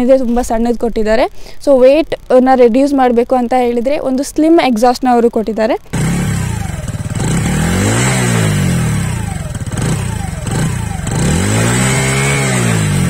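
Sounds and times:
motorcycle engine revving: 5.9s - 13.0s.

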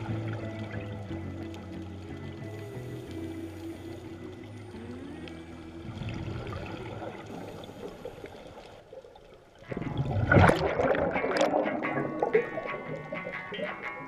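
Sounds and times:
scuba exhaust bubbles gurgling: 0.0s - 14.0s
underwater hiss: 2.4s - 8.8s.

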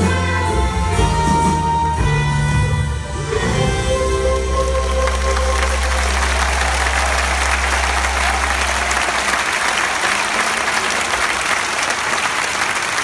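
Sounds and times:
stadium crowd applauding: 4.0s - 13.0s.

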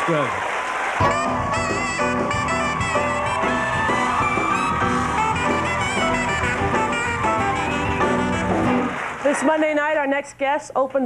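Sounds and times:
saxophone melody: 1.0s - 9.1s
jazz band playing: 1.0s - 9.3s.

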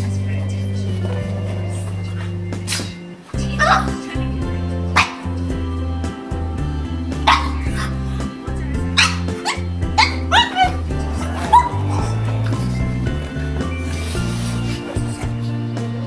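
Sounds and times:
background music with bass: 0.0s - 16.0s
puppy yipping and barking: 7.3s - 7.7s, 9.0s - 10.8s, 11.4s - 11.8s.

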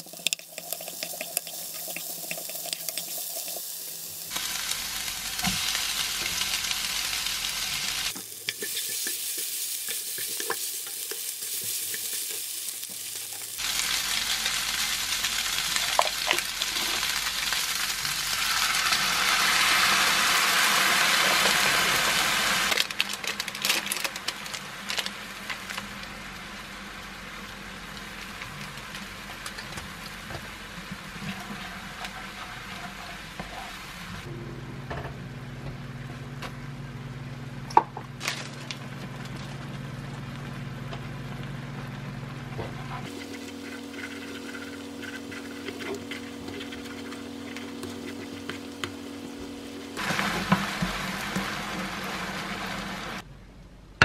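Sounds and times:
low sizzle in frying pan: 0.0s - 53.3s
low hum: 33.9s - 50.6s
wooden spoon scraping pan: 42.7s - 48.9s.

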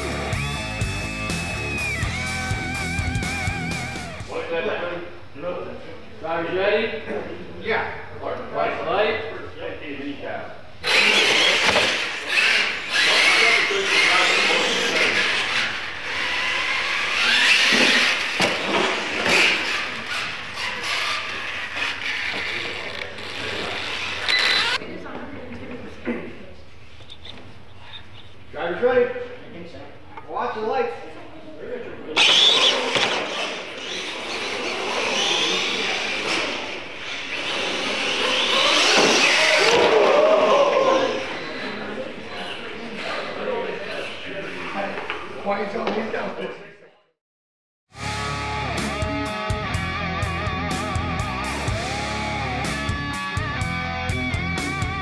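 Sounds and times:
toy truck electric motors whining: 10.8s - 24.8s, 32.2s - 40.0s.

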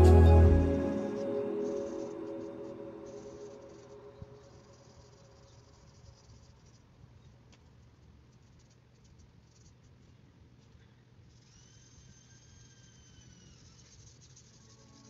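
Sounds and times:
background music: 0.0s - 4.4s
held high tone: 0.0s - 4.7s
faint hiss: 0.0s - 15.0s.

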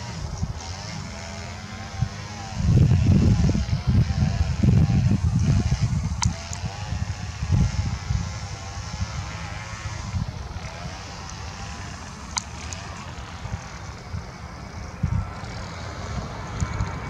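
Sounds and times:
gusty low rumble: 2.0s - 11.8s.

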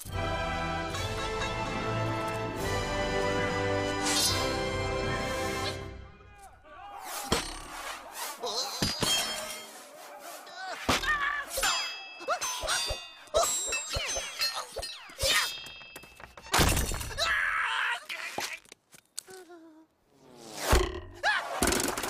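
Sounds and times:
steel sword clanging: 11.5s - 15.8s.

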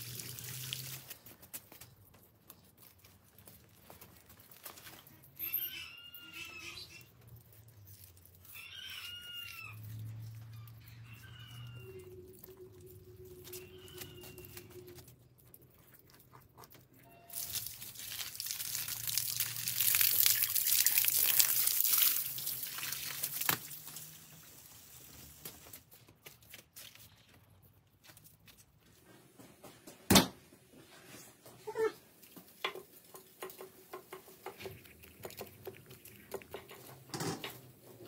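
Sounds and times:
water from hose gushing: 0.0s - 1.3s, 17.3s - 25.7s.

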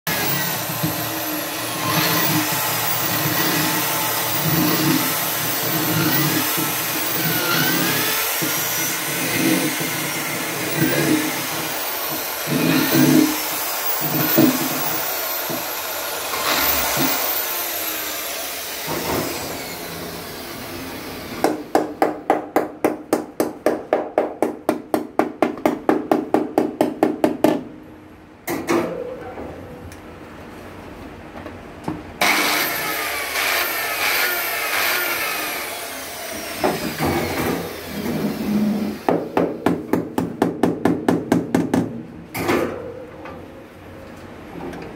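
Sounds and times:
electric drill boring into wood: 0.1s - 21.4s, 32.2s - 39.1s.

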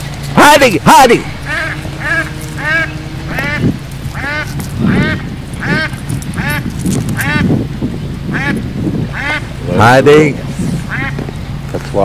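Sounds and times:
duck quacking: 1.0s - 7.5s, 8.3s - 10.0s, 10.9s - 11.3s.

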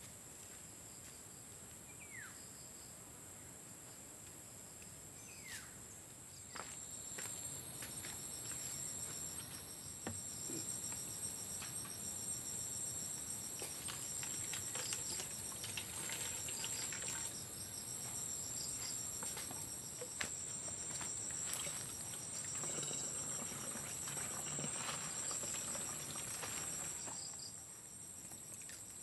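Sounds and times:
pulsing insect chorus: 6.5s - 29.0s
water poured into plastic jug: 13.9s - 17.4s, 22.5s - 27.0s.

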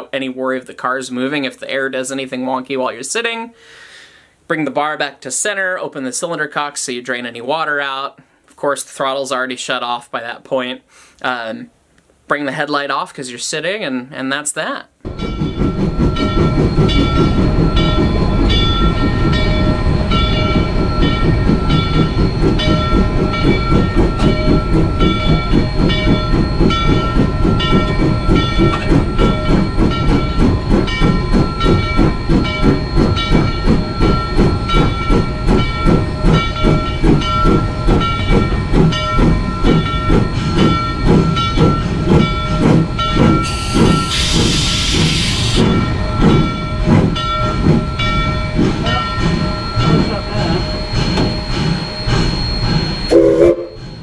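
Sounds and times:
steam hissing: 15.1s - 54.0s
steam locomotive chugging: 15.1s - 54.0s.

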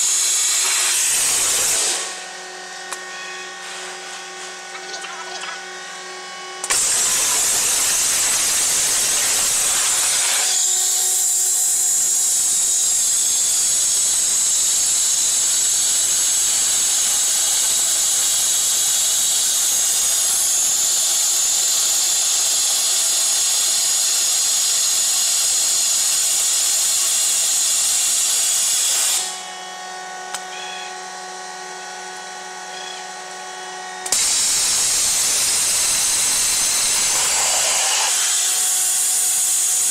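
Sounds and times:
machine hum with steady tones: 0.0s - 22.1s, 27.4s - 39.9s
waterjet hissing: 6.6s - 10.6s, 34.1s - 39.3s.

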